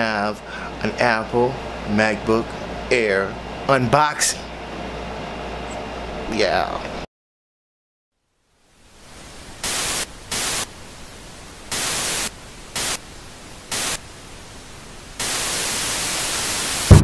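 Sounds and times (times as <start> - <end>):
television static hiss: 8.2 - 17.0.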